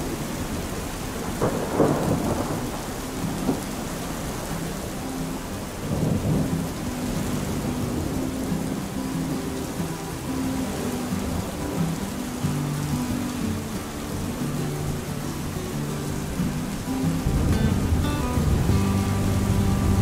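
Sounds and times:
thunder rumbles: 0.0s - 8.3s, 16.2s - 20.0s
rain hiss: 0.0s - 20.0s
faint low held music notes: 1.7s - 20.0s.

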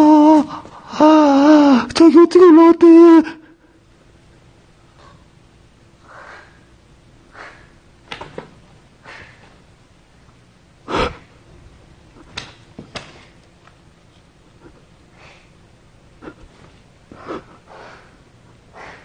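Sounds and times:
person sniffing: 10.9s - 11.4s, 16.2s - 19.0s.

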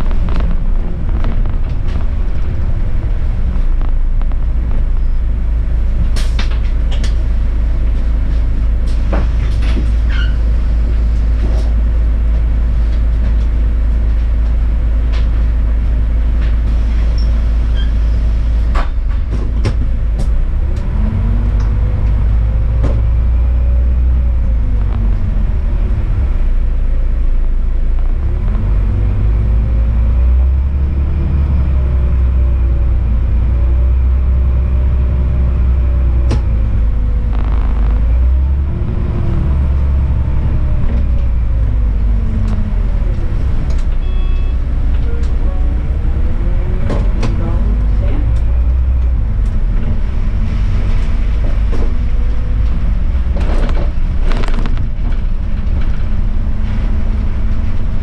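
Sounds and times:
sharp clicks and rattles: 0.0s - 7.3s, 24.2s - 26.4s, 36.1s - 44.0s, 51.7s - 56.2s
bus engine and road rumble: 0.0s - 58.0s.

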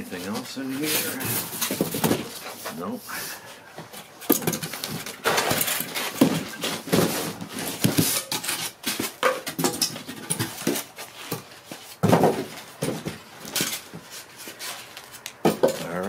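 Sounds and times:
cardboard box rustling and scraping: 0.2s - 3.0s, 4.6s - 9.2s.

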